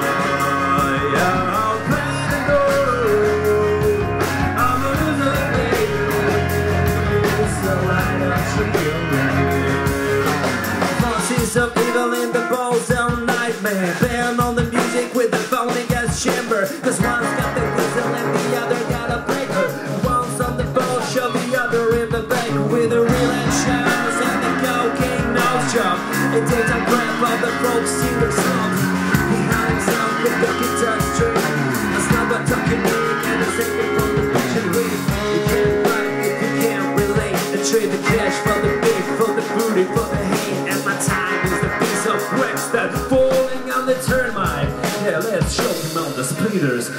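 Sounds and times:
rock band playing: 0.0 - 46.9
drum hits: 12.8 - 46.2.

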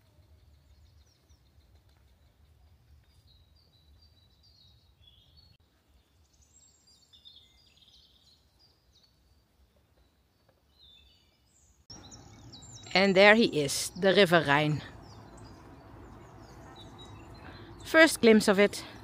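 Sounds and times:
faint birdsong chirps: 0.0 - 19.0
low steady rumble: 13.9 - 19.0.

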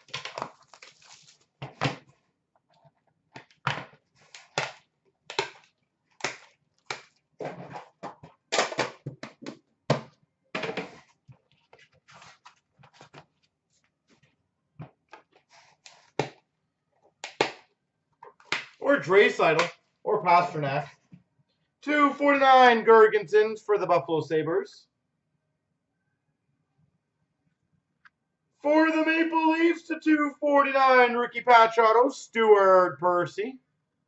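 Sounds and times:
cards rustling: 0.0 - 1.8, 10.9 - 14.3.

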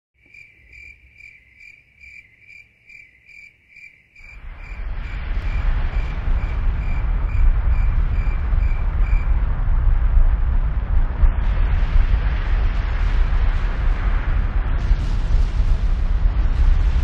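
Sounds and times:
cricket chirping: 0.2 - 9.4
low rushing roar: 4.4 - 17.0.

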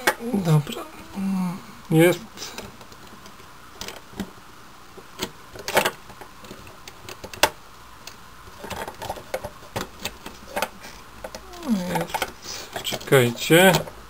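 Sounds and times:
hard plastic clicking and rattling: 5.1 - 14.0.

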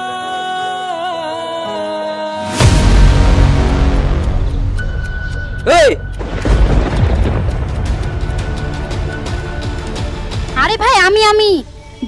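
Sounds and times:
heavy low rumble: 2.7 - 10.6
sudden loud boom: 6.2 - 9.4.

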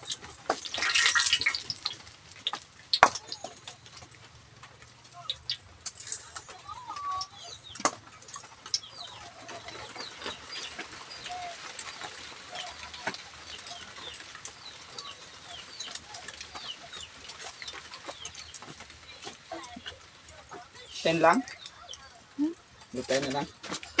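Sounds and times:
chickens clucking: 0.0 - 24.0
leaves frying in hot oil: 0.0 - 24.0
small birds chirping: 0.0 - 24.0.

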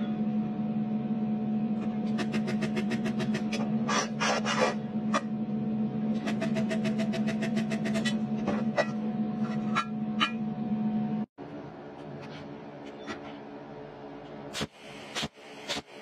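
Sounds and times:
steady hum: 0.0 - 16.0
spot welder clicking: 14.6 - 16.0.

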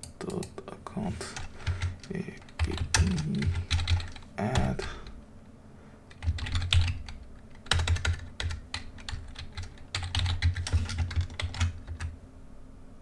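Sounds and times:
typing on computer keyboard: 1.4 - 5.1, 6.1 - 12.1.

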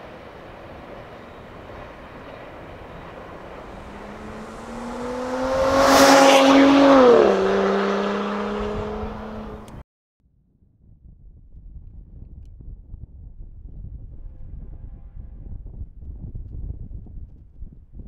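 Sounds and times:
vehicle passing by: 2.7 - 9.8.

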